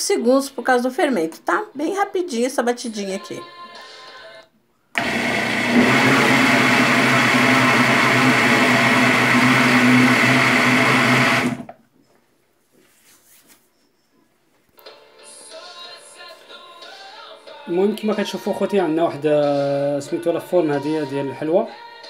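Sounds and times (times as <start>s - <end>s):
blender running: 5.0s - 11.7s.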